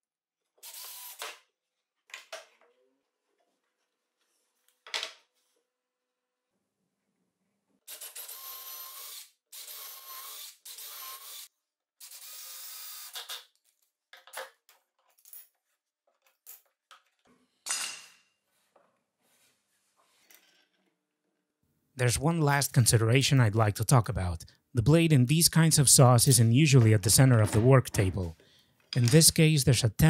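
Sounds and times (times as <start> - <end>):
cordless drill driving screws: 0.6 - 1.4, 7.9 - 13.4.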